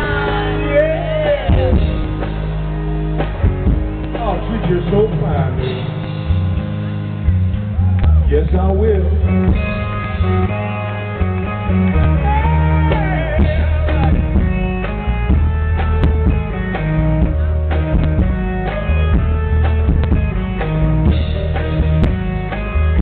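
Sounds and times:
bass line: 0.0s - 23.0s
drums: 0.0s - 23.0s
electric guitar: 0.0s - 23.0s
keyboard: 0.0s - 23.0s.

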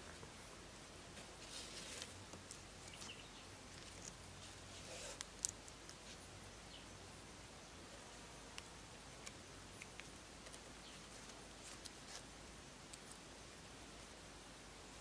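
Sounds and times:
bamboo poles scratching and rustling: 1.1s - 6.3s, 9.2s - 12.4s.

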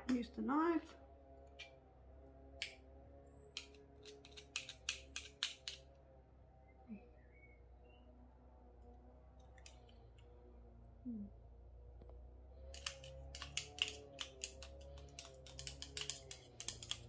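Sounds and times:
low steady hum: 0.0s - 17.0s
knife clicking on garlic press: 3.6s - 5.8s, 12.7s - 17.0s.

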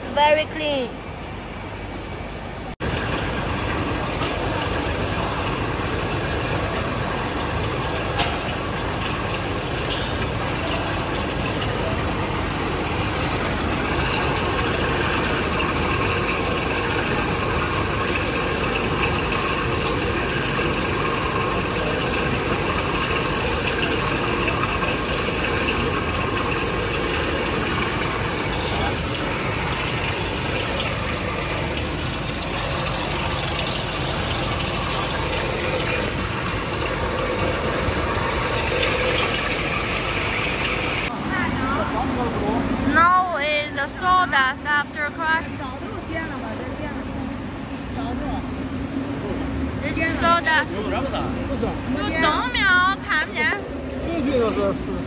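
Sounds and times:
steady mechanical din: 2.6s - 55.0s.

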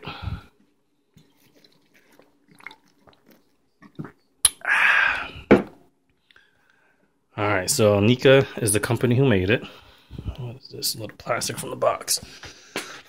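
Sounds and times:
man sipping and swallowing: 0.2s - 5.6s.

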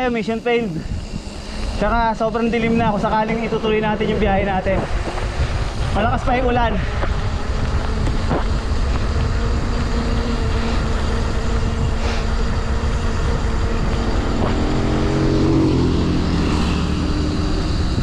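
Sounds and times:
motor vehicle passing: 0.0s - 18.0s
wind and rain on microphone: 4.2s - 16.2s.

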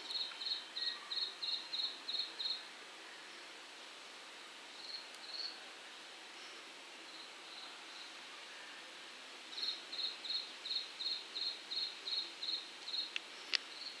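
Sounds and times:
insect chirping: 0.0s - 2.6s, 4.8s - 5.6s, 9.6s - 14.0s
faint background hiss: 0.0s - 14.0s.

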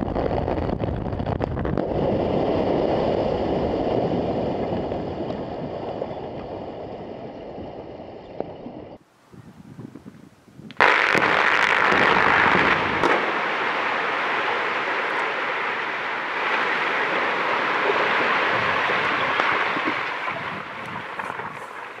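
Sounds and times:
sharp crack: 10.6s - 22.0s.

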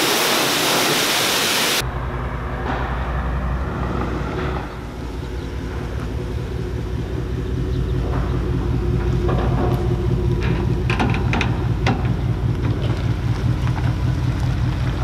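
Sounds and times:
pressure washer spray hissing: 0.0s - 1.8s
truck engine running low: 0.0s - 15.0s.

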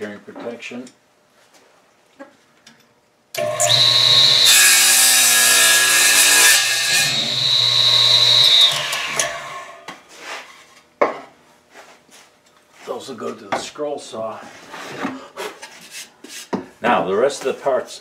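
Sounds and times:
saw motor whining: 3.4s - 9.9s
saw blade cutting wood: 3.4s - 10.0s.

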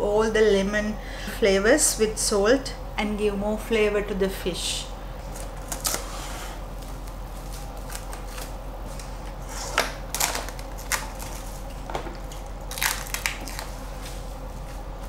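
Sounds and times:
plastic cling wrap crinkling: 5.3s - 6.1s, 6.8s - 14.3s.

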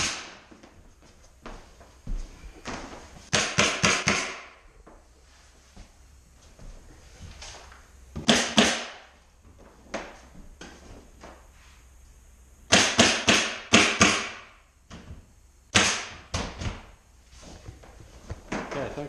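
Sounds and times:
pneumatic staple gun firing: 0.0s - 0.4s, 3.3s - 4.6s, 8.2s - 9.0s, 12.7s - 14.5s, 15.7s - 16.9s.

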